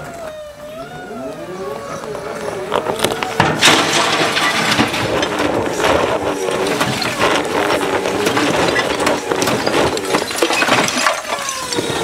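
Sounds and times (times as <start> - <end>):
loader engine running under load: 2.1 - 12.0
roof tiles crunching and clattering: 2.4 - 12.0.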